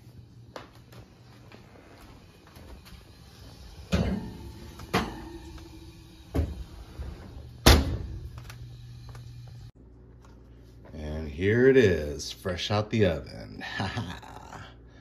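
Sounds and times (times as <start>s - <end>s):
low steady hum: 0.0s - 15.0s
oven door clunking open: 7.5s - 8.4s
oven door banging shut: 7.6s - 8.4s.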